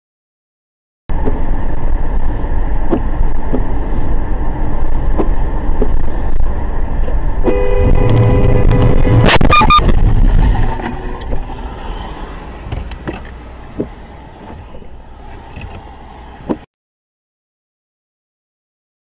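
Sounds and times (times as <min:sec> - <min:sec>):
car road and engine noise: 0:01.1 - 0:16.7
car horn held: 0:07.4 - 0:10.0.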